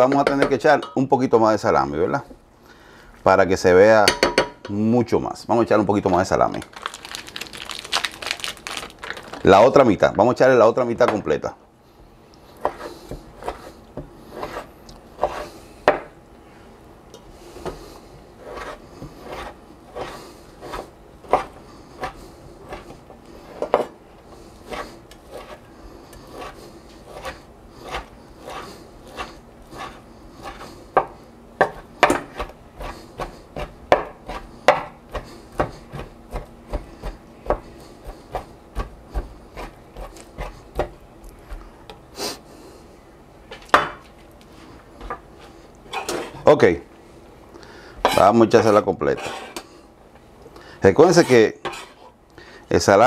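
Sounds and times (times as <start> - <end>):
knife chopping on wooden board: 20.7 - 22.9, 26.4 - 41.0.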